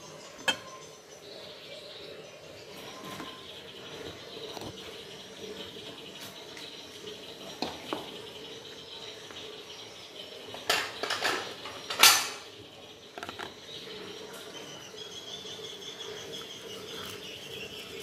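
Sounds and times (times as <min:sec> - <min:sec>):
plates and spoon clinking: 0:00.2 - 0:01.0, 0:10.5 - 0:12.6.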